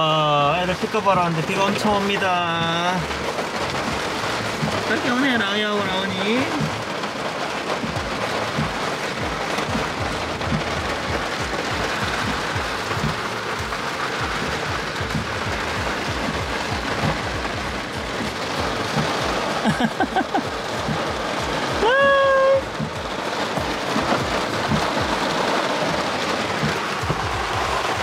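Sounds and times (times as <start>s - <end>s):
heavy rain on a car roof: 0.0s - 28.0s.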